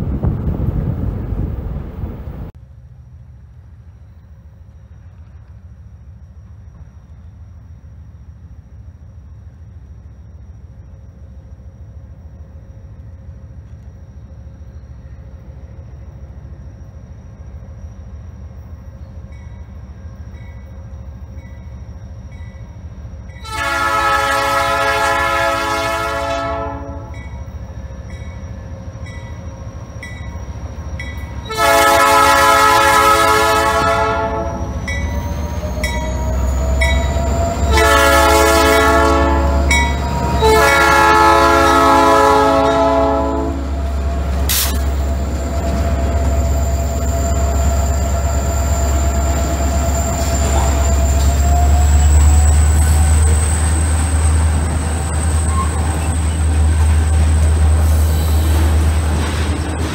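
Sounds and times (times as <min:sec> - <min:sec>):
locomotive engine rumble: 0:00.0 - 0:59.9
locomotive horn blasts: 0:23.4 - 0:27.2, 0:31.5 - 0:34.7, 0:37.6 - 0:43.8.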